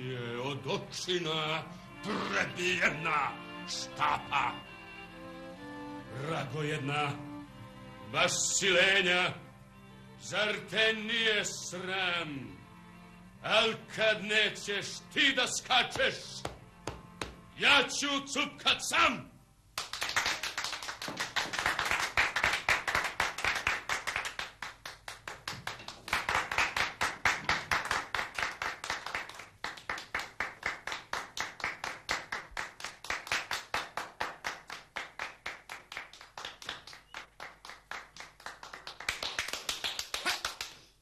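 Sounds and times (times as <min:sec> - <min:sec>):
people clapping: 0:16.1 - 0:17.4, 0:19.8 - 0:41.0.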